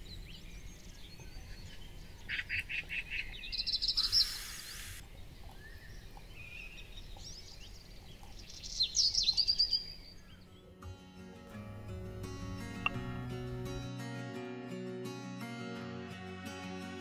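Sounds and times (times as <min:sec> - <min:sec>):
songbirds chirping and trilling: 0:00.0 - 0:13.9
burst of hiss: 0:04.0 - 0:05.0.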